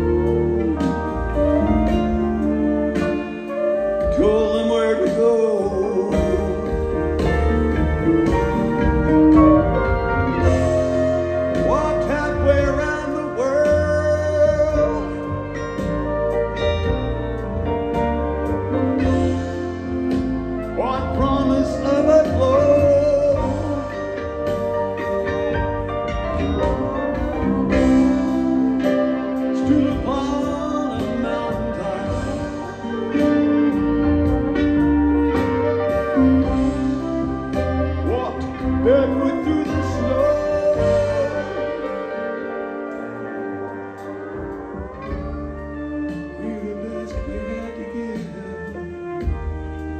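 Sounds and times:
person singing: 0:00.0 - 0:09.4, 0:20.1 - 0:44.1, 0:45.0 - 0:49.9
bass and drums: 0:00.0 - 0:49.9
live band playing: 0:00.0 - 0:49.9.

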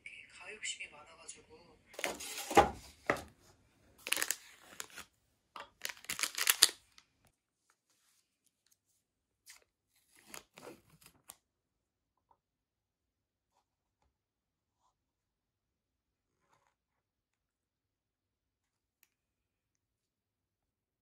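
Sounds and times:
packaging crinkling: 0:04.0 - 0:05.1, 0:05.7 - 0:07.0.

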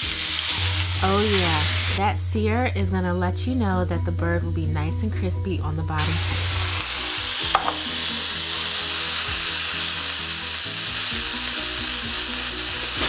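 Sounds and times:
chicken sizzling in a skillet: 0:00.0 - 0:02.0, 0:06.0 - 0:13.0
soft background music: 0:00.0 - 0:13.0.

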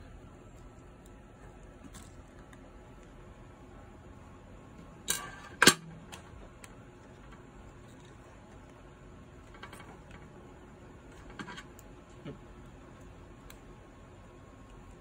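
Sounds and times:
small ticks and clicks: 0:11.0 - 0:15.0.

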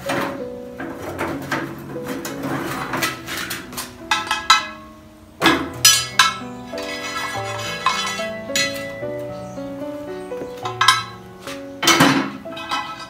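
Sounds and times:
background music: 0:00.0 - 0:13.0
pot lid scraping metal bowl: 0:00.9 - 0:04.6, 0:05.9 - 0:09.0
sharp metallic clanks: 0:01.1 - 0:09.2, 0:10.6 - 0:11.2.

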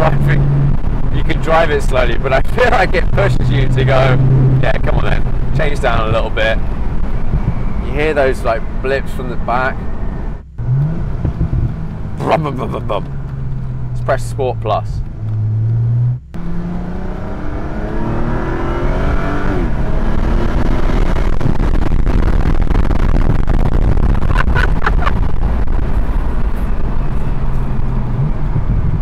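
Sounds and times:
car engine accelerating hard: 0:00.0 - 0:29.0
wind and road noise: 0:00.0 - 0:29.0.

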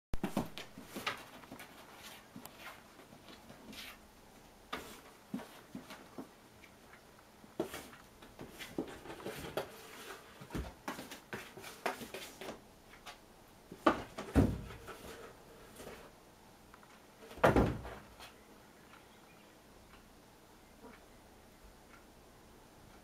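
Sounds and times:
cardboard box thumps: 0:13.8 - 0:14.8.

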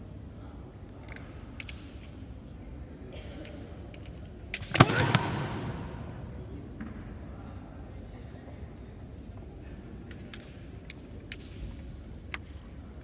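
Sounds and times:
sharp cracks of strikes: 0:04.7 - 0:06.1.

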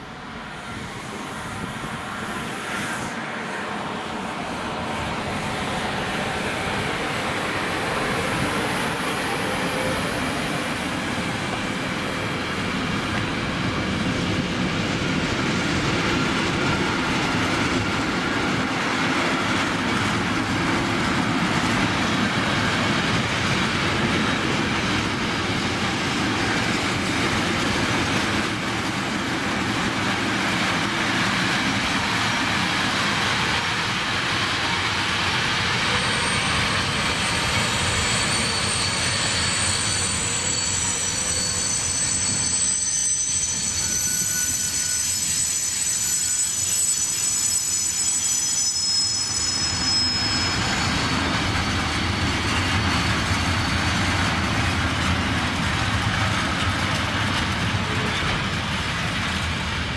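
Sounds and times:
train wheels rumbling on rails: 0:00.0 - 0:59.9
high wheel squeal: 0:21.1 - 0:58.9.

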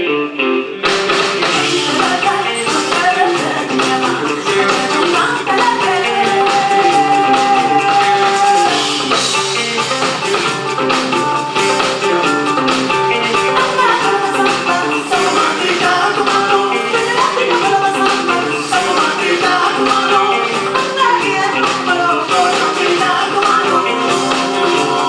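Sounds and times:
repeating guitar riff: 0:00.0 - 0:25.0
steady percussion: 0:00.9 - 0:25.0
woman singing: 0:01.5 - 0:09.0, 0:13.3 - 0:25.0.

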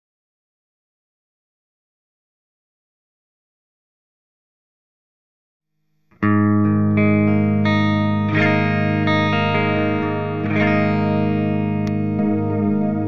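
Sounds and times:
electric guitar chords ringing: 0:06.2 - 0:13.0.

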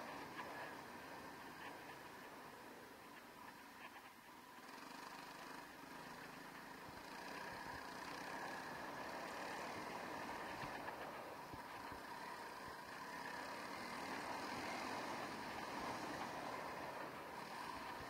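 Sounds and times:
dirt bike engine running: 0:00.0 - 0:18.0.

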